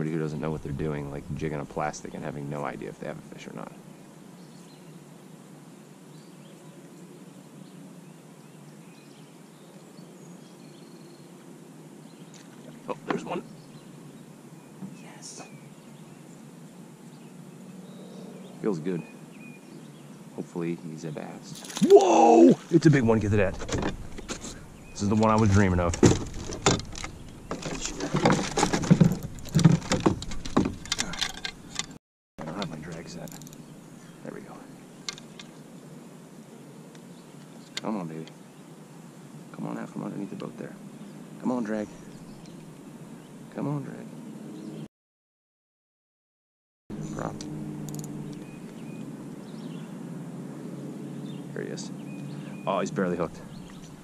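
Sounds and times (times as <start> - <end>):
steady low hiss: 0.0 - 21.8, 22.5 - 44.4
knocks and clatter in a boat: 25.2 - 32.7
faint bird chirps: 51.0 - 54.0.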